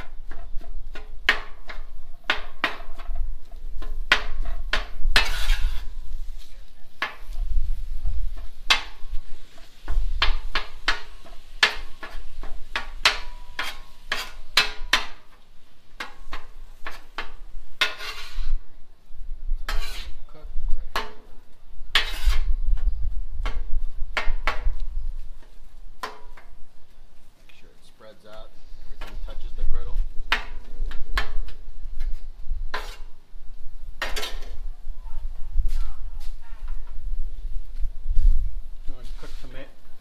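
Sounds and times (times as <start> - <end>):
spatula scraping griddle: 0.0 - 18.6, 19.6 - 20.3, 21.9 - 22.6, 30.3 - 33.2, 34.0 - 34.6.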